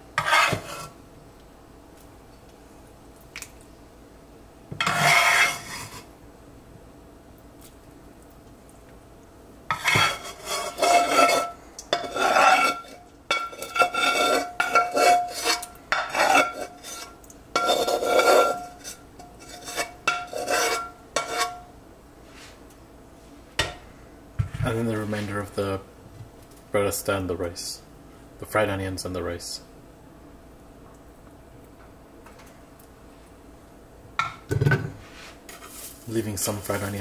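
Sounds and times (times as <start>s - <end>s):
metal spoon scraping cookware: 0.2s - 0.9s, 4.8s - 6.1s, 9.7s - 21.6s.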